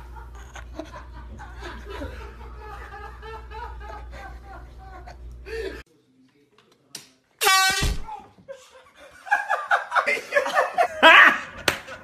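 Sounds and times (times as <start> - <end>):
people laughing: 0.0 - 5.8, 8.5 - 12.0.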